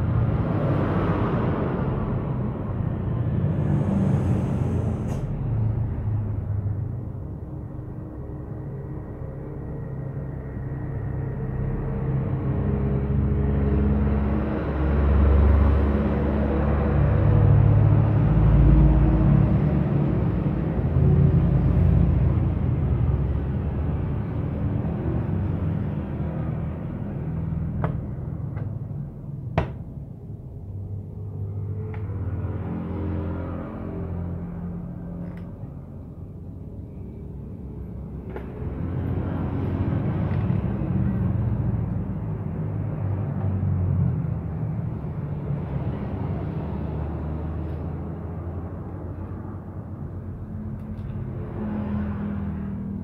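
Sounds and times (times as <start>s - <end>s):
engine droning: 0.0s - 53.0s
steady low rumble: 1.4s - 14.5s, 19.4s - 46.3s.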